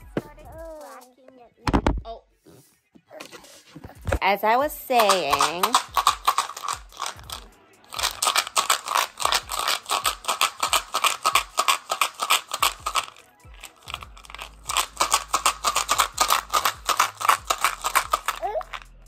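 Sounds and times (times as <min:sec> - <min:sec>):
pellets rattling in plastic bottle: 0:04.7 - 0:19.0.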